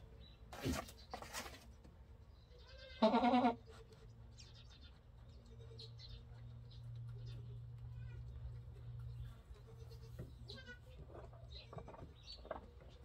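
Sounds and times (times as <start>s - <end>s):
goat bleating: 2.5s - 3.8s, 7.8s - 8.6s, 9.5s - 11.8s.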